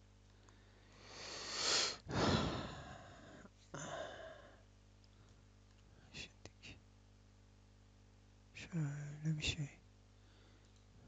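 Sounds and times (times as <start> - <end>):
man breathing: 0.4 - 4.7, 10.2 - 10.8.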